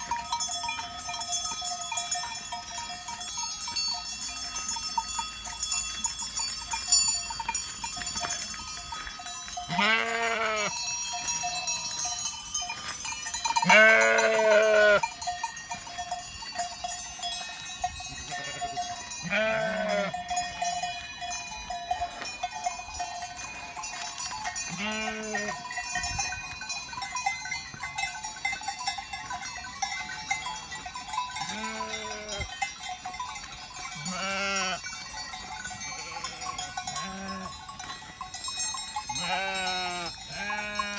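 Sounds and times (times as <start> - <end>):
livestock bells clinking: 0.0 - 40.9
animals bleating: 9.7 - 10.8, 13.6 - 15.0, 18.3 - 20.2, 24.7 - 25.6, 31.4 - 32.5, 34.0 - 34.8, 35.8 - 37.6, 39.1 - 40.9.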